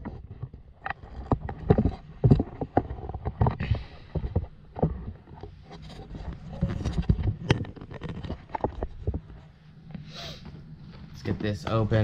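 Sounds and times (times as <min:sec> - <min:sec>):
handling knocks and clicks: 0:00.0 - 0:09.5.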